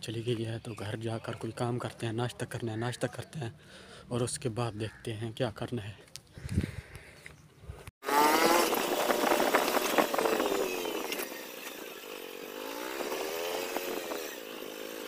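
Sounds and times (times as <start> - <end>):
small engine buzzing drone: 8.0 - 15.0.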